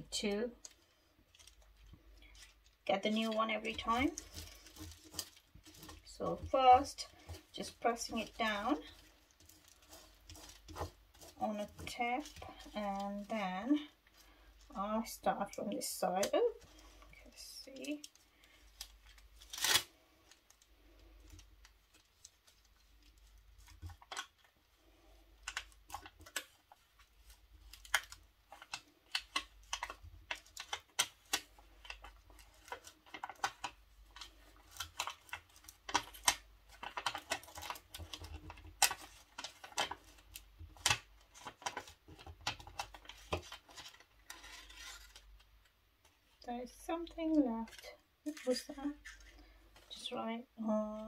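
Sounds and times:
tape peeling crackles and clicks: 0:18.8 - 0:24.5, 0:27.6 - 0:45.4.

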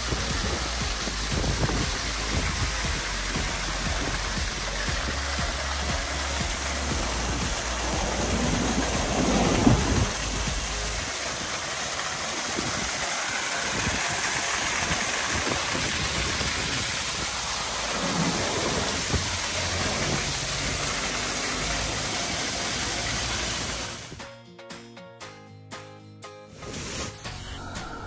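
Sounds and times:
waterfall pouring and splashing: 0:00.0 - 0:24.2.

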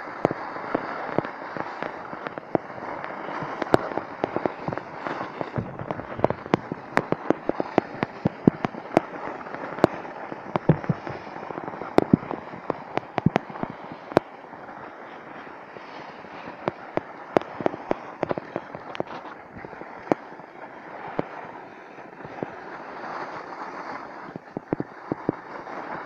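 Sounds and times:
sharp clicks and cracks: 0:00.0 - 0:14.3, 0:15.4 - 0:20.3, 0:24.2 - 0:25.5.

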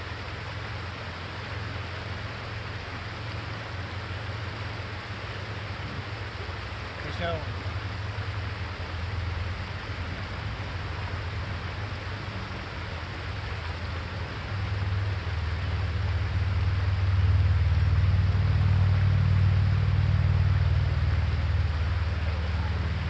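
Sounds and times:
creek water running: 0:00.0 - 0:23.0
wind rumble on microphone: 0:07.6 - 0:23.0.

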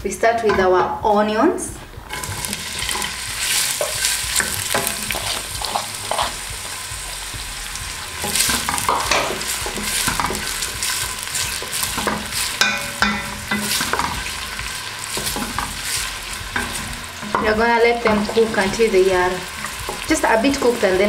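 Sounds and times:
wooden spoon scraping pot: 0:02.0 - 0:06.8
onions sizzling in hot oil: 0:02.0 - 0:21.0.

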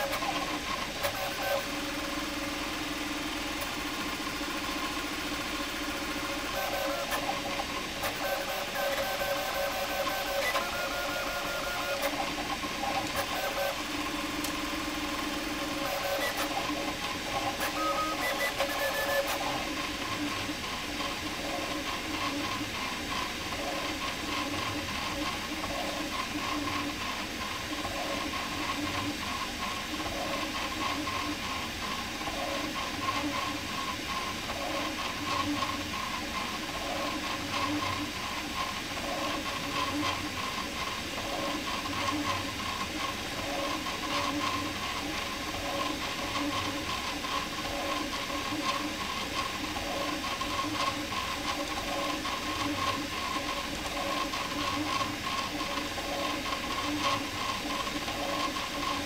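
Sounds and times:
stepper motors whining: 0:14.8 - 0:19.4.

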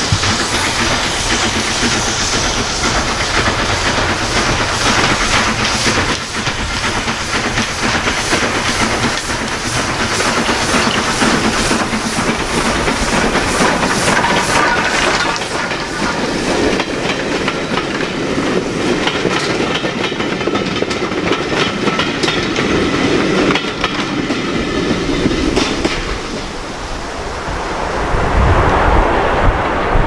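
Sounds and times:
steam hiss: 0:00.0 - 0:21.3
steam locomotive exhaust beats: 0:00.0 - 0:27.4.

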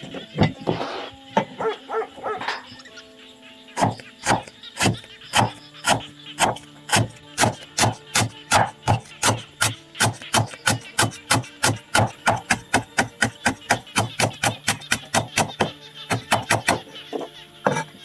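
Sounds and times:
cleaver chopping on wooden block: 0:03.8 - 0:17.9.

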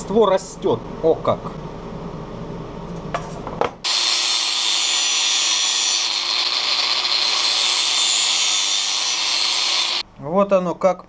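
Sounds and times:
angle grinder grinding sheet metal: 0:03.9 - 0:10.0.

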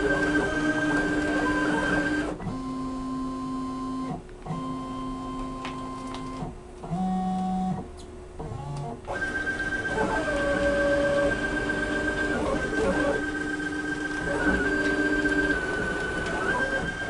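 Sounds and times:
stepper motors whining: 0:08.7 - 0:17.0.

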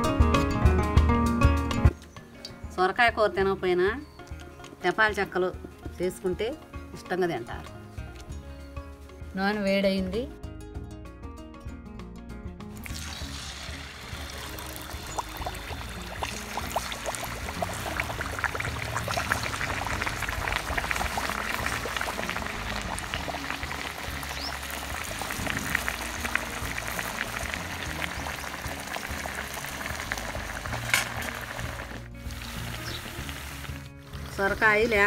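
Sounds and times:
dough deep-frying in oil: 0:12.8 - 0:35.0.

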